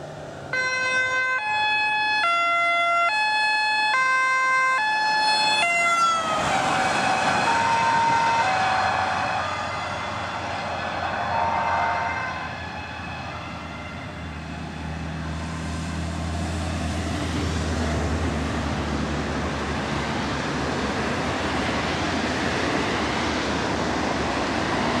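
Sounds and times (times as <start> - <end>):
traffic noise: 0.0 - 25.0
ambulance siren: 0.4 - 17.0.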